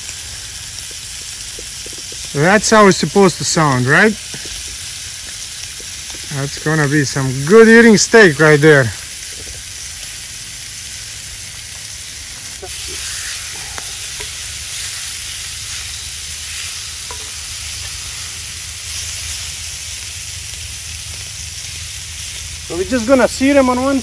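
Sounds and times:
small pops: 0.0s - 2.4s, 4.2s - 6.3s
steaks sizzling on a grill: 0.0s - 24.0s.

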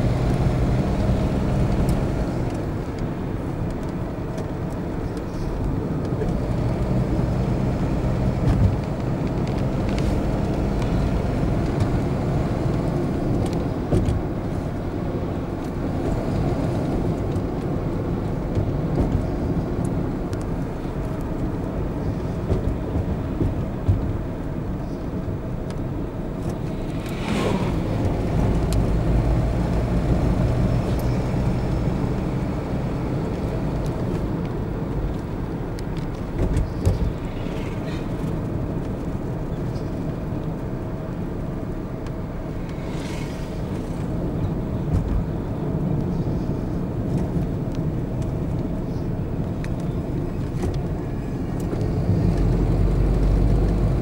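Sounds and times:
car engine and tyre noise: 0.0s - 54.0s.

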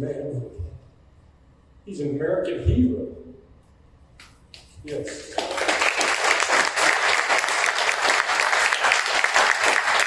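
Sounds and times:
audience applauding: 4.9s - 10.0s.

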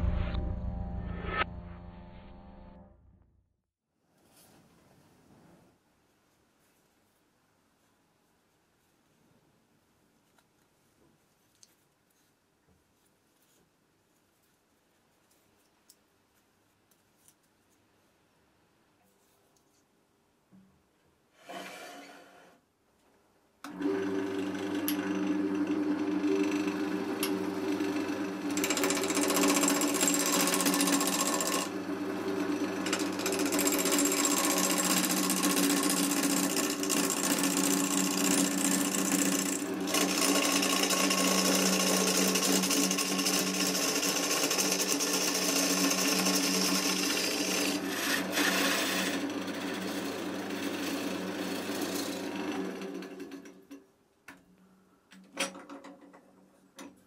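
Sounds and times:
lathe motor hum: 23.7s - 53.3s
lathe winding down: 23.7s - 53.5s.

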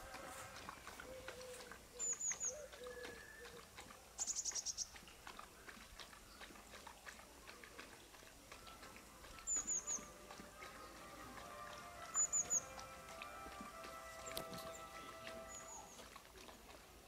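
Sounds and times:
dog sniffing at ground: 0.0s - 17.0s
songbirds chirping: 0.0s - 17.0s.

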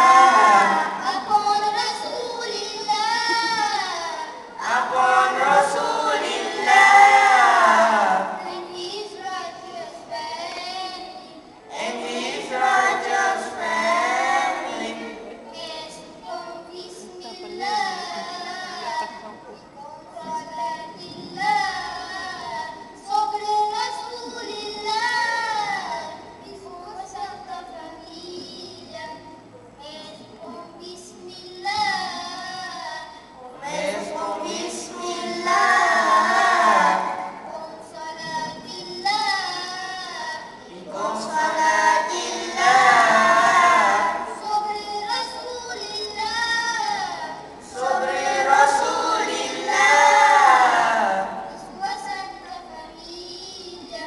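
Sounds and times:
boys singing: 0.0s - 10.9s, 11.7s - 16.1s, 33.6s - 52.5s.

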